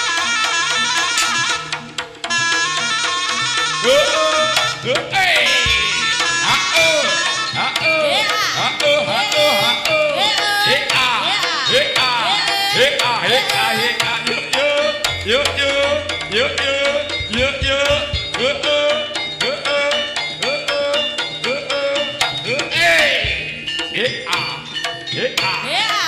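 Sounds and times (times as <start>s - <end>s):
steady held tones: 0.9s - 2.4s, 3.8s - 26.0s
rapid hand drum strokes: 3.7s - 7.2s, 15.0s - 18.7s
low booming: 15.0s - 18.9s.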